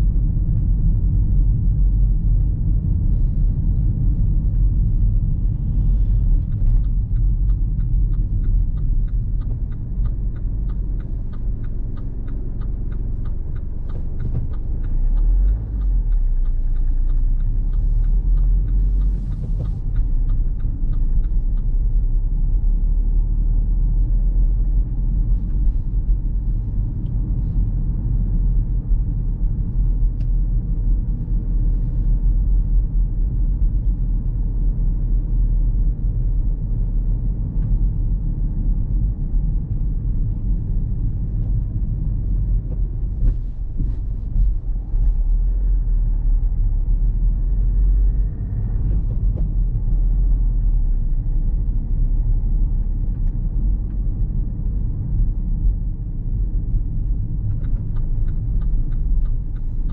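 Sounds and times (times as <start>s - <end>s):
car engine and road noise: 0.0s - 59.9s
regular ticking: 6.4s - 22.8s, 56.9s - 59.9s.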